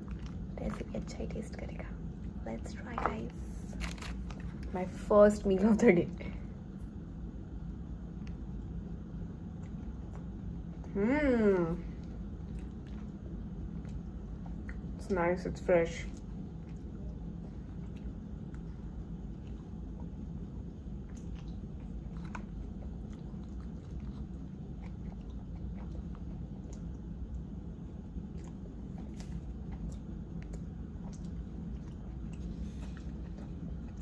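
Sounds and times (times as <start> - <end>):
low hum: 0.0 - 34.0
person chewing: 16.1 - 34.0.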